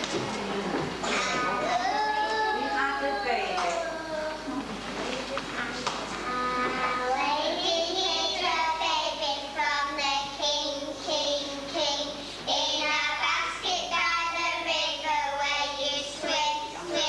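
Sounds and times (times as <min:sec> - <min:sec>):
children singing: 0:06.3 - 0:17.0.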